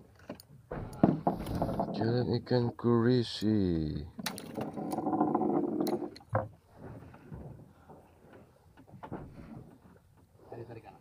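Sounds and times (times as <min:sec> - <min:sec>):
knocks and clicks on wooden boat: 0:00.2 - 0:02.0.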